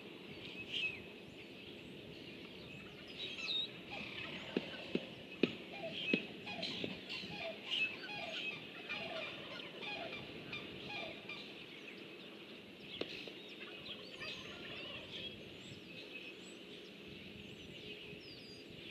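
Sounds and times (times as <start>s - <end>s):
small birds chirping: 0.2s - 18.9s
turkey calling: 5.7s - 11.5s, 13.7s - 15.2s.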